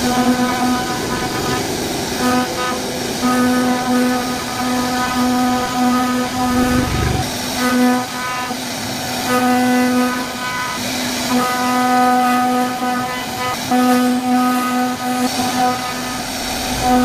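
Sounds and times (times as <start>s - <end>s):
wood-carving machine whining: 0.0s - 8.5s.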